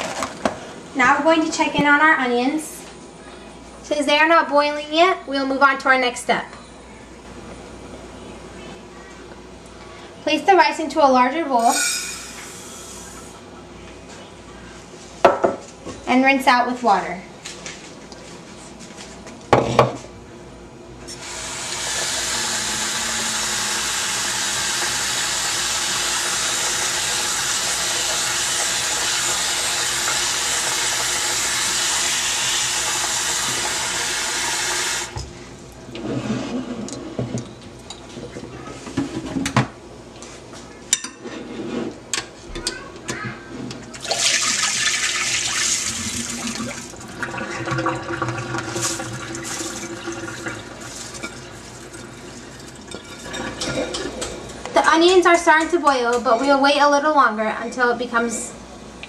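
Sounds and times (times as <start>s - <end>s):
faucet running into bowl: 21.2s - 35.2s, 44.0s - 54.0s.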